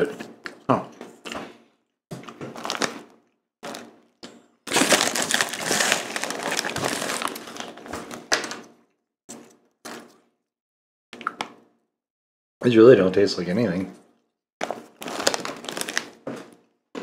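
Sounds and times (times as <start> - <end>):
snack bag crinkling: 2.5 - 4.0, 4.7 - 8.7, 14.6 - 16.6
crackers being chewed: 4.7 - 8.6, 14.6 - 16.6.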